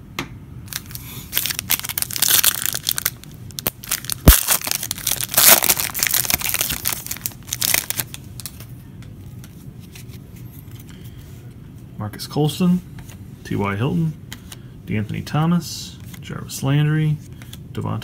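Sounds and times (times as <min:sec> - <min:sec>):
foil wrapper crinkling: 0:00.7 - 0:08.6
sharp wrapper snap: 0:03.6 - 0:05.8.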